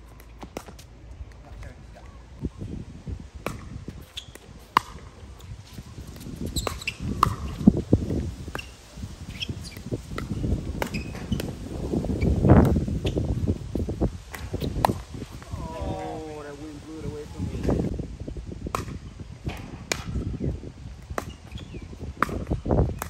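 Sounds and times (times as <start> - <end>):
shoes squeaking on court: 0.0 - 2.3, 3.9 - 15.5, 21.1 - 22.4.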